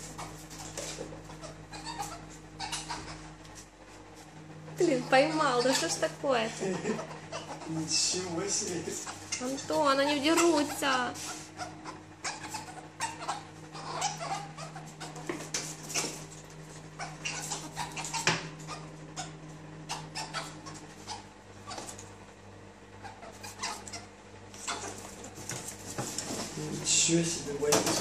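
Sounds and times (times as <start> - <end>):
animals scuffling and knocking: 0.0 - 4.4, 14.0 - 18.6, 24.6 - 28.0
steady low hum: 0.0 - 28.0.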